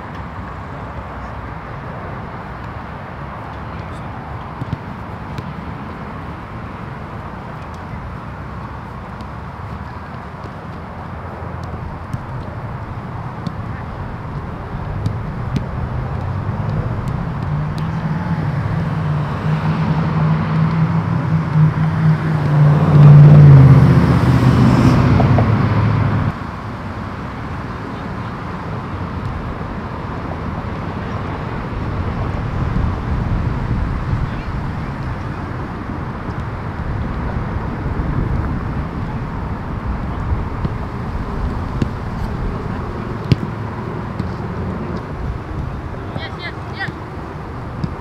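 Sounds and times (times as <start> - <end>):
vehicle engine hum: 0.0 - 48.0
outdoor rumble: 3.9 - 26.4.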